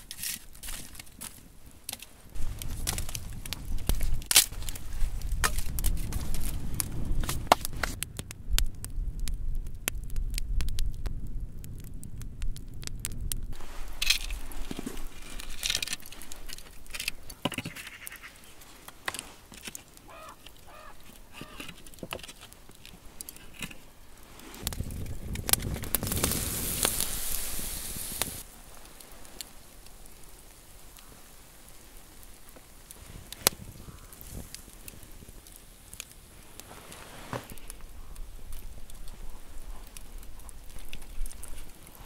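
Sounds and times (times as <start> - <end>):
wooden sticks clicking and knocking: 0.0 - 8.3, 13.8 - 23.9
campfire crackling: 0.0 - 42.0.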